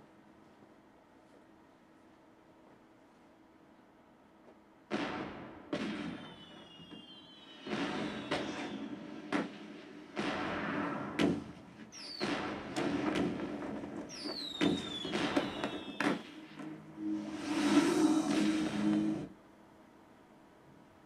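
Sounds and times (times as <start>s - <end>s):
fireworks bangs and crackles: 4.9s - 16.7s
falling whistles: 6.1s - 8.9s, 11.9s - 12.3s, 14.1s - 19.1s.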